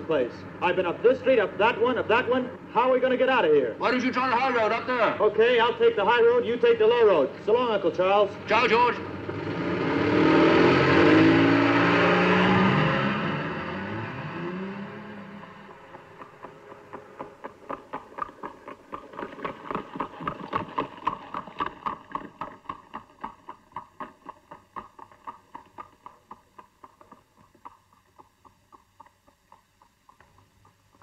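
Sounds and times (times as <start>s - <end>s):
clip-clop of hoofbeats: 15.3s - 31.0s.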